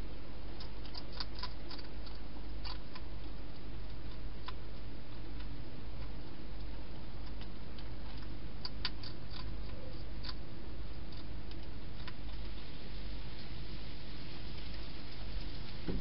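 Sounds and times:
steady low hum: 0.0s - 16.0s
hedgehog chewing clicks: 0.6s - 12.5s.

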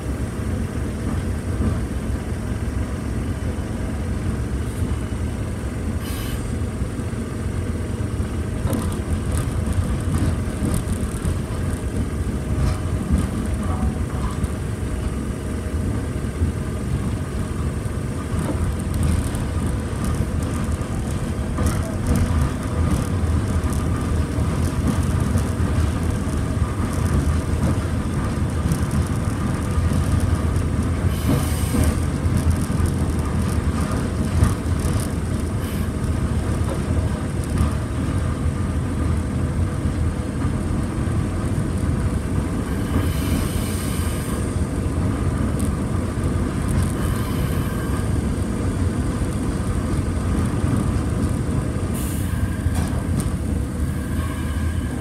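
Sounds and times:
tram rumbling on rails: 0.0s - 55.0s
air hiss: 6.0s - 6.5s.

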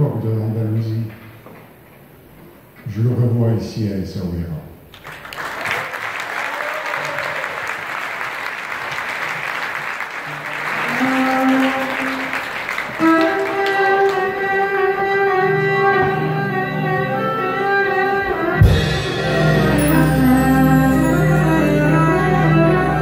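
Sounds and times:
audience applauding: 4.9s - 15.3s
held instrument notes: 10.7s - 23.0s
ensemble of violins oud and keyboard: 10.8s - 23.0s.

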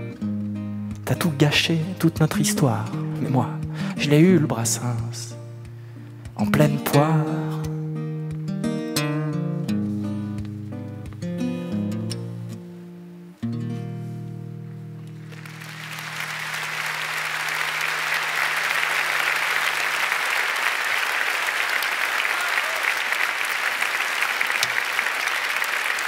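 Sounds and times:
audience applause: 15.2s - 26.0s.

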